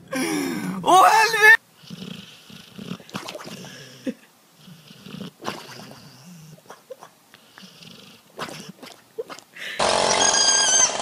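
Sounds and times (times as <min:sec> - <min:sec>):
dog snoring: 0:01.8 - 0:04.0, 0:04.6 - 0:09.0.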